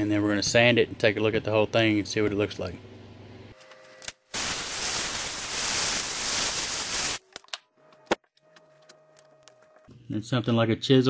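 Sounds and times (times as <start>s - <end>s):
loud rushing hiss: 4.4s - 7.2s.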